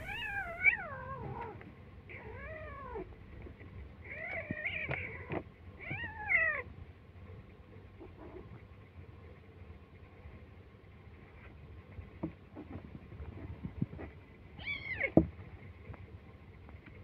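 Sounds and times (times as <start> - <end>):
kitten meowing: 0.0 - 1.5.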